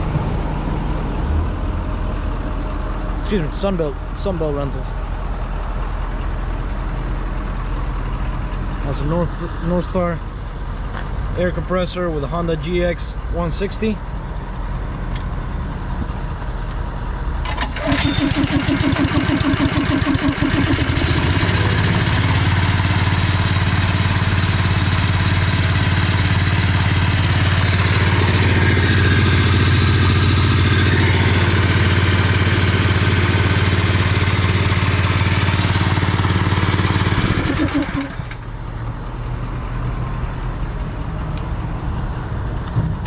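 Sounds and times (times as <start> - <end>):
petrol engine running: 14.2 - 38.8
air compressor running: 17.5 - 38.4.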